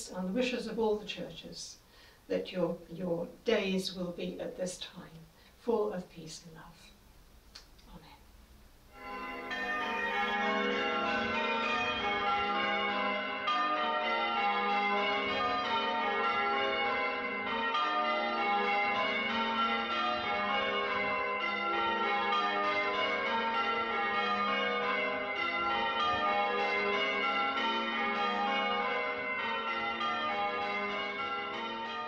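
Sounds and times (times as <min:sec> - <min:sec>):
church bells change ringing: 0:08.9 - 0:32.0.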